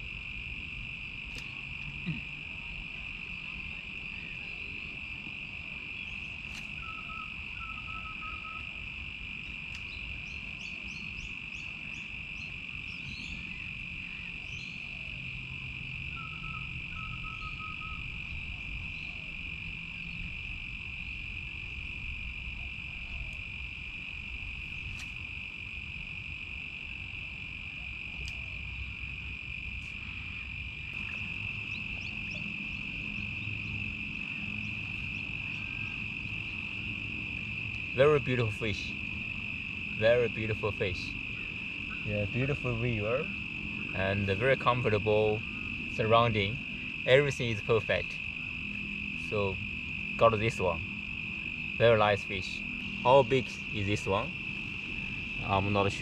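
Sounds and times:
crickets chirping: 0:00.0 - 0:56.0
lower chirps: 0:05.9 - 0:56.0.

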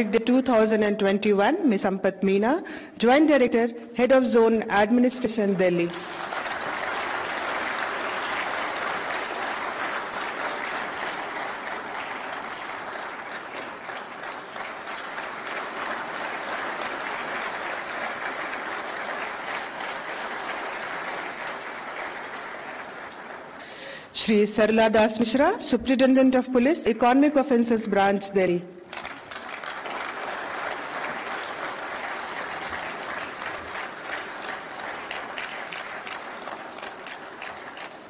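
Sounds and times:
audience applauding: 0:05.8 - 0:24.0, 0:28.9 - 0:38.0.

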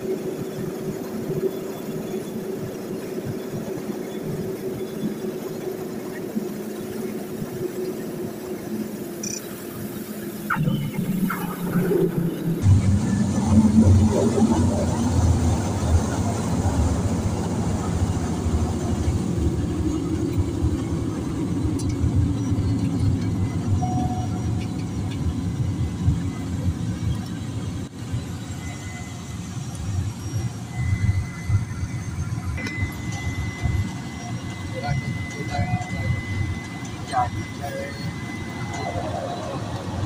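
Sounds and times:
propeller plane engine rumble: 0:00.0 - 0:40.0
faint steady high tone: 0:28.4 - 0:40.0.

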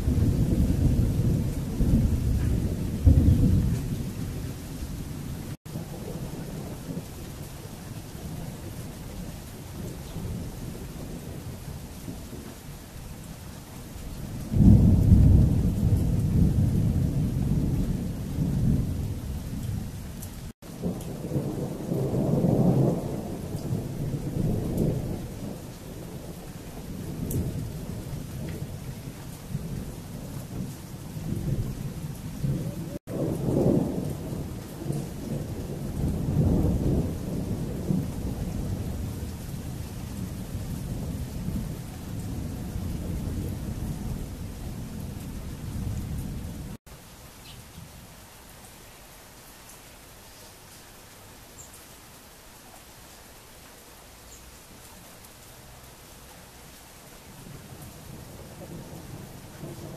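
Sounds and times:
thunder rumbling: 0:00.0 - 0:12.6, 0:14.3 - 0:46.8, 0:57.4 - 0:59.9.

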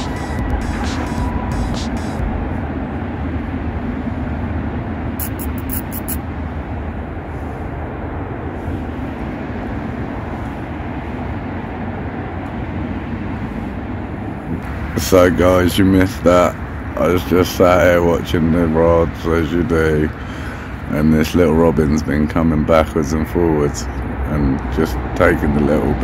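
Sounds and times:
heavy road traffic rumble: 0:00.0 - 0:26.0
quick clicks: 0:05.2 - 0:06.2.

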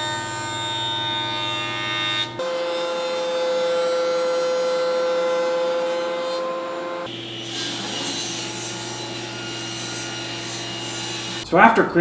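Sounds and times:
thickness planer whining: 0:00.0 - 0:11.6
table saw ripping a board: 0:01.9 - 0:11.4.

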